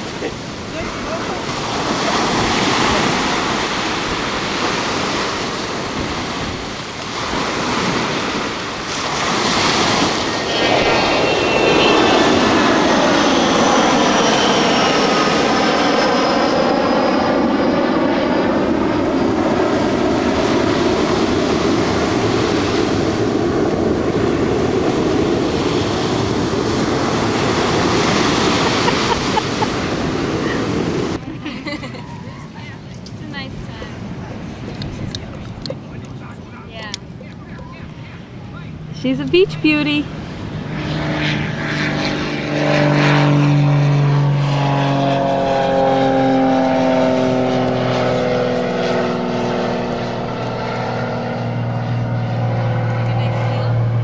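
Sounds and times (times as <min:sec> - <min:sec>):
surf breaking ashore: 0:00.0 - 0:15.5, 0:19.6 - 0:41.0
airplane engine drone overhead: 0:00.0 - 0:54.0.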